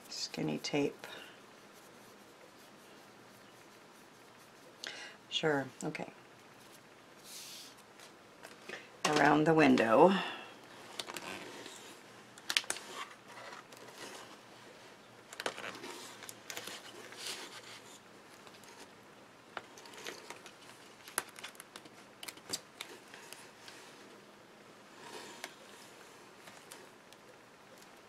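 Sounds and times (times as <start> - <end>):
rustles and crinkles of card: 10.7 - 19.0, 19.6 - 24.2.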